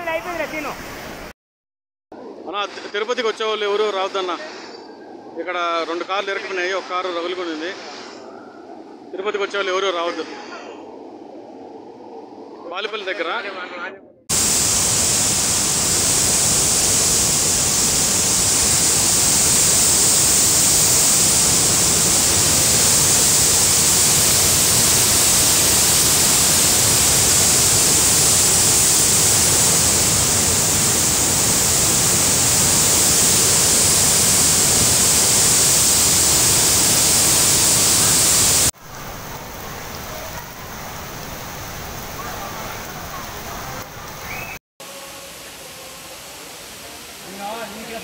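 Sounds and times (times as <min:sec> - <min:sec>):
floodwater and waterfall rushing: 0:00.0 - 0:01.3, 0:14.3 - 0:48.0.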